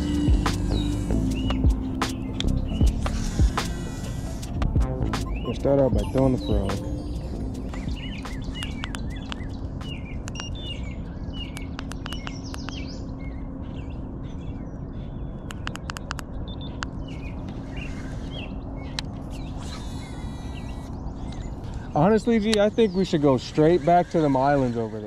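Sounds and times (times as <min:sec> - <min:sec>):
electric motor humming: 0:00.0 - 0:09.9, 0:16.8 - 0:25.0
small birds chirping: 0:00.0 - 0:25.0.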